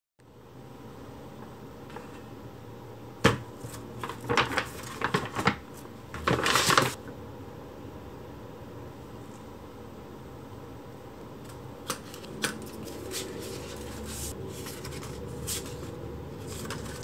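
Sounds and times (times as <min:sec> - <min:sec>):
paper bag rustling: 0:03.6 - 0:07.0, 0:12.0 - 0:17.0.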